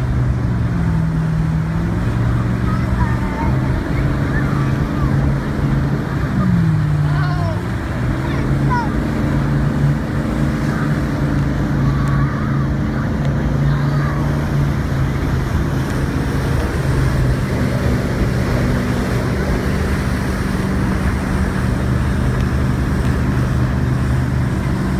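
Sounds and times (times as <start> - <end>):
motorboat engine humming: 0.0 - 24.9
rushing wake water: 0.0 - 24.9
wind: 0.0 - 24.9.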